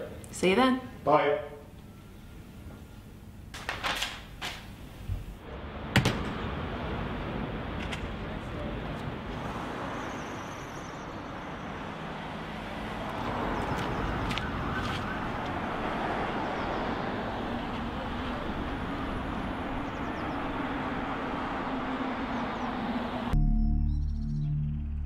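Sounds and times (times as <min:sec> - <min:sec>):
hiss of cars on a street: 0:04.9 - 0:23.3.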